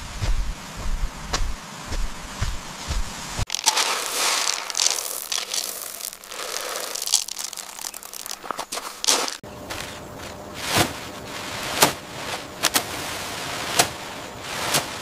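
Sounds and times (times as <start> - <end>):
crinkling and rustling: 3.4 - 15.0.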